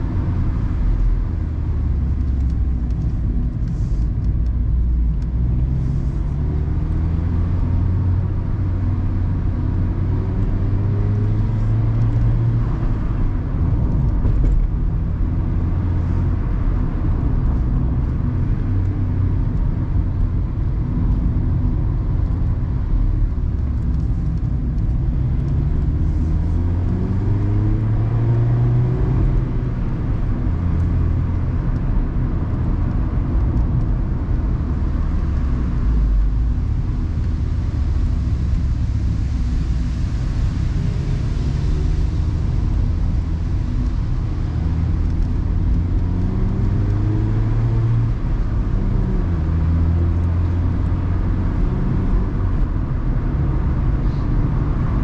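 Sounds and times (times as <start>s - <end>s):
wind and tyre noise: 0.0s - 55.0s.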